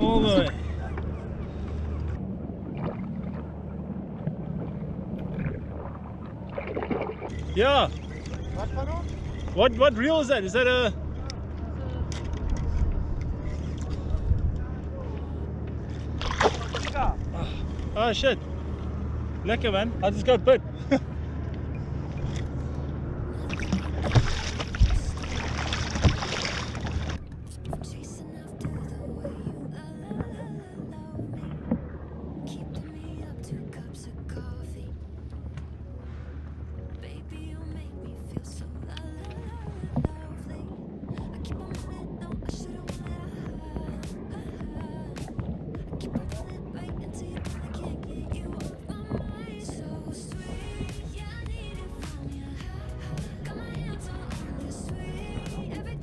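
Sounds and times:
water against hull: 0:00.0 - 0:56.0
wind rumble on microphone: 0:00.0 - 0:56.0
kayak paddle splashing: 0:00.6 - 0:09.8, 0:15.1 - 0:18.8, 0:21.2 - 0:28.0.

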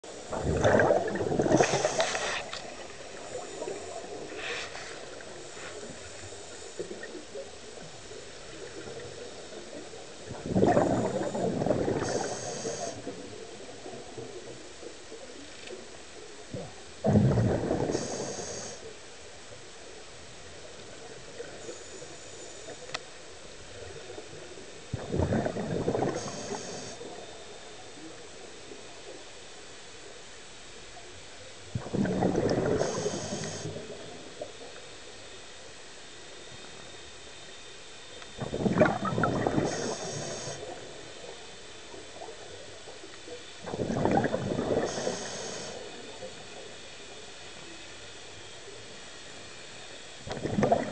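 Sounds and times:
underwater breath bubbles: 0:00.2 - 0:07.1, 0:10.3 - 0:13.2, 0:16.6 - 0:18.8, 0:24.9 - 0:27.2, 0:31.8 - 0:34.0, 0:38.4 - 0:40.8, 0:43.6 - 0:46.0, 0:50.3 - 0:50.9.

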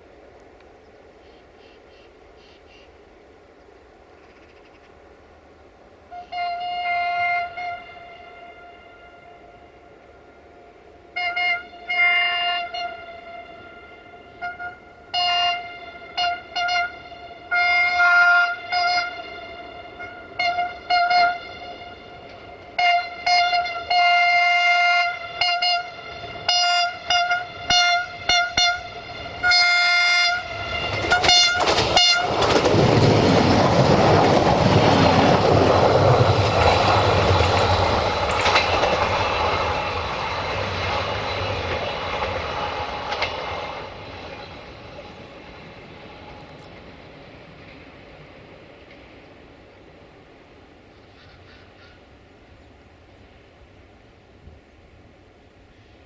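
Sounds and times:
train rumbling on rails: 0:00.0 - 0:56.0
train horn toots: 0:06.0 - 0:32.5.

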